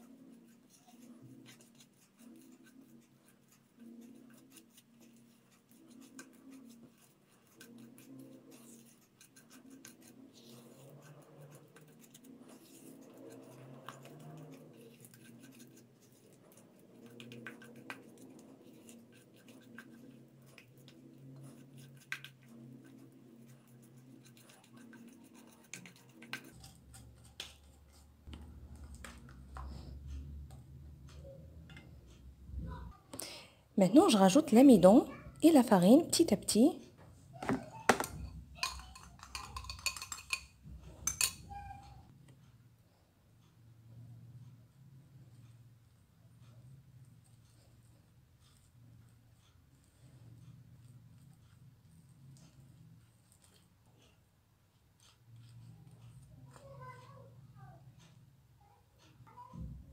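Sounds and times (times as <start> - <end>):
spatula scraping butter in bowl: 0.0 - 30.0, 37.5 - 41.9.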